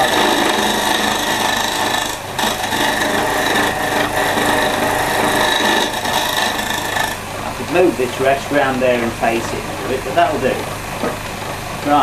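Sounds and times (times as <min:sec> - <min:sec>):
chisel rasping on spinning wood: 0:00.0 - 0:12.0
lathe motor whine: 0:00.0 - 0:12.0.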